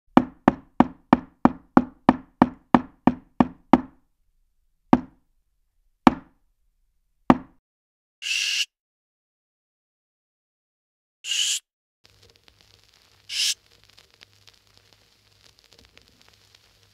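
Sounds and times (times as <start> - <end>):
sharp knocks: 0.1 - 4.0, 5.0 - 5.2, 6.0 - 6.4, 7.3 - 7.6
short burst of hiss: 11.3 - 16.9.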